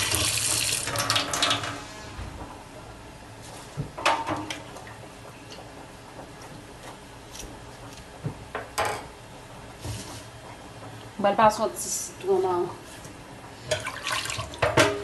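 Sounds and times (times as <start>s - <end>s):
kitchen things knocking and clicking: 14.6s - 15.0s.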